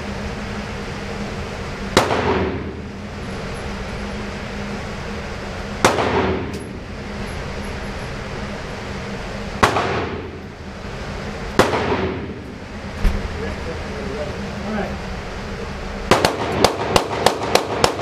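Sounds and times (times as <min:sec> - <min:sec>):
steady background hum: 0:00.0 - 0:18.0
gunshots with echo: 0:02.0 - 0:02.8, 0:05.8 - 0:06.5, 0:09.6 - 0:10.3, 0:11.6 - 0:12.4, 0:16.1 - 0:18.0.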